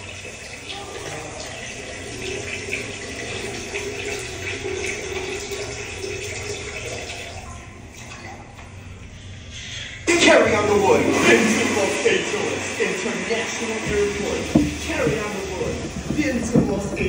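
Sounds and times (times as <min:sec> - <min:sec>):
toilet flushing: 0:00.0 - 0:17.0.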